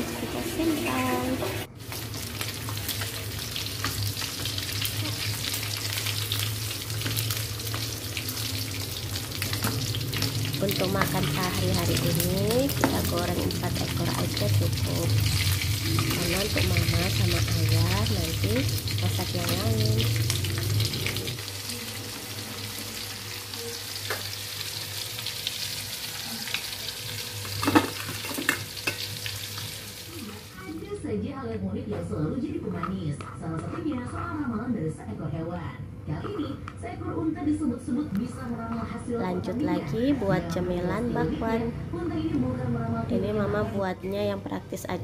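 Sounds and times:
chicken frying in hot oil: 0.0 - 30.7.

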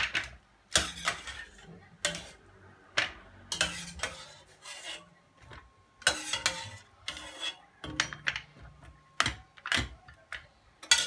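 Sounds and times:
metal ladle scraping steel pot: 0.7 - 2.5, 3.5 - 8.5, 10.8 - 11.0.

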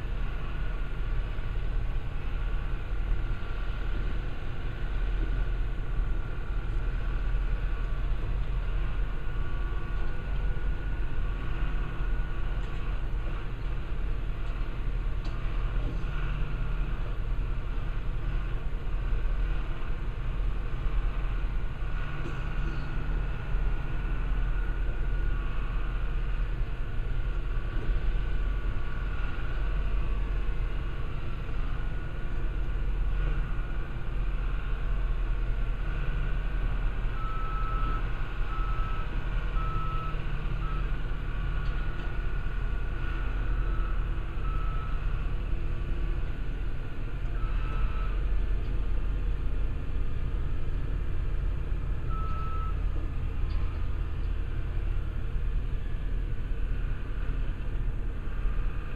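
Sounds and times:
crane engine running: 0.0 - 58.9
travel alarm short high beeps: 52.1 - 52.8.

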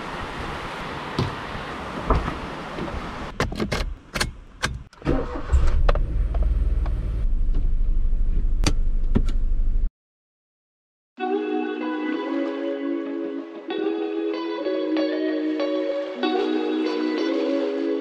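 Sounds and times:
car door clicking and shutting: 2.1 - 7.8, 8.4 - 9.5
car engine starting and idling: 3.6 - 9.9.

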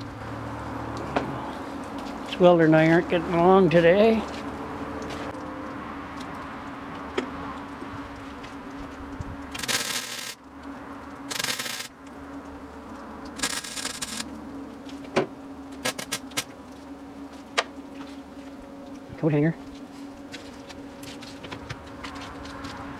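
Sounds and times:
steady low hum: 0.0 - 22.9
welder crackling bursts: 9.5 - 10.4, 11.2 - 12.0, 13.3 - 14.3, 15.8 - 16.5.

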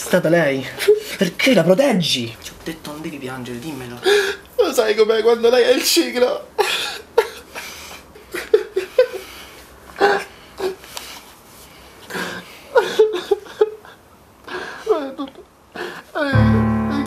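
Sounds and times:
man sobbing: 4.0 - 4.6, 6.4 - 9.4, 10.0 - 10.9, 12.1 - 16.5.

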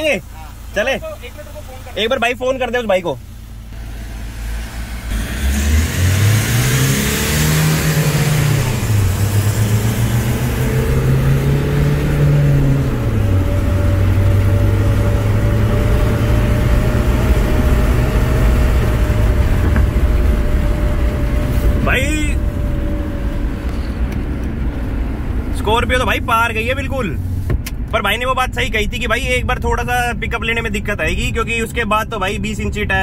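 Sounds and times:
car engine accelerating: 0.0 - 31.8
loud road noise: 3.3 - 27.9.

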